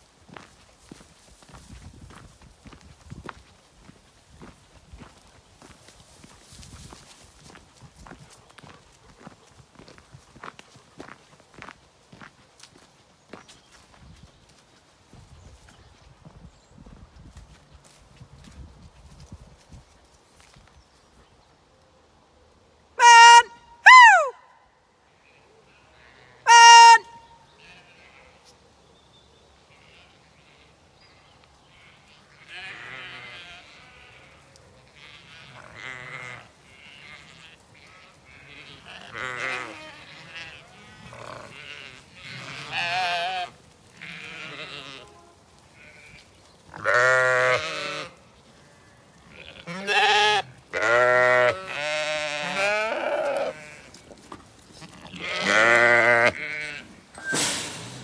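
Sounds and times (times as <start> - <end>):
sheep bleating: 25.7 - 28.4, 31.7 - 54.0, 54.7 - 57.0.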